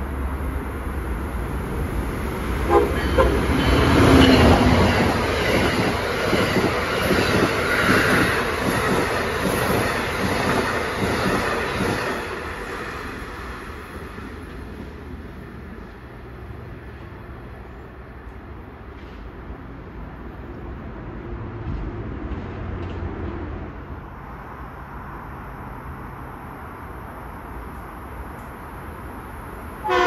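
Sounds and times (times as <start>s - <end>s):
electric train passing at speed: 0.0s - 30.0s
wheels clickety-clack over rail: 1.6s - 17.3s, 21.5s - 23.7s
sharp clicks of locomotive: 18.2s - 19.6s, 21.6s - 23.5s, 27.6s - 28.8s.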